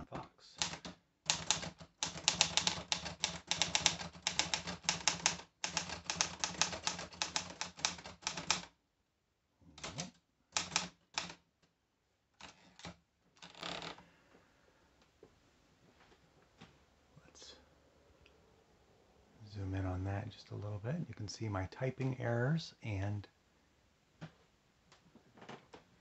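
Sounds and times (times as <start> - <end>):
typewriter platen ratcheting: 0.6 - 8.7, 9.8 - 11.4
typewriter typing: 0.6 - 8.7, 9.8 - 11.4, 12.4 - 13.0.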